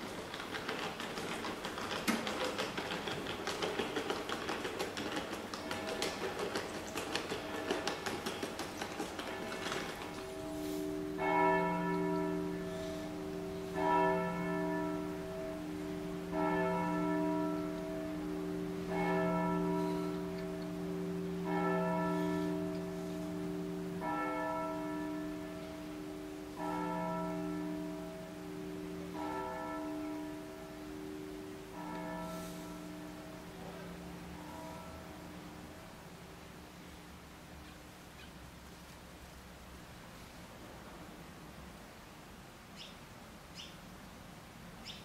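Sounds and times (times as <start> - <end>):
church bell tolling: 5.6 - 36.0.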